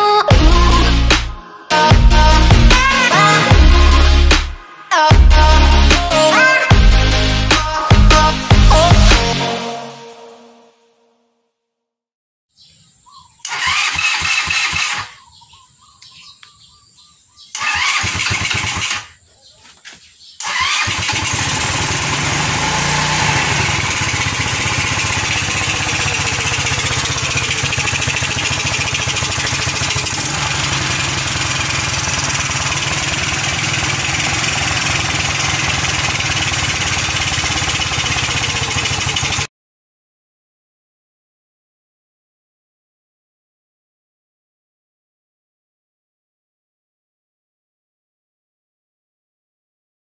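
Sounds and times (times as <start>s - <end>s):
scooter engine starting: 13.4s - 15.4s, 17.5s - 19.2s, 20.4s - 39.5s
scooter engine running: 13.5s - 15.3s, 17.6s - 19.2s, 20.4s - 39.5s.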